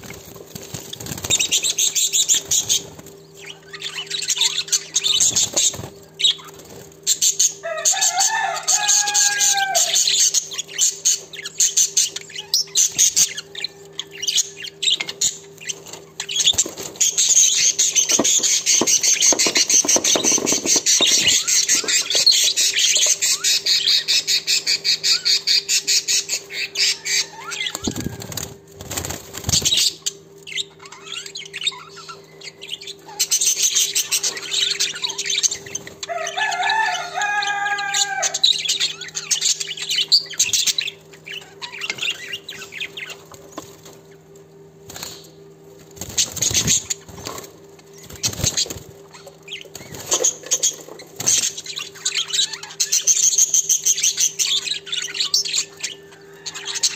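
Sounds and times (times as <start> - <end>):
budgerigars chattering: 0.8 - 28.2, 46.0 - 56.9.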